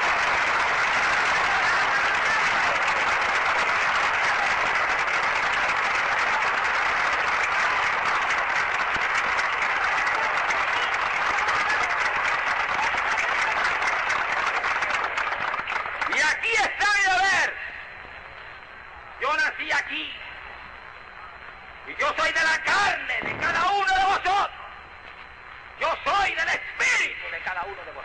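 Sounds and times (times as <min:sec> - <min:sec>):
crowd applauding: 0:00.0 - 0:17.5.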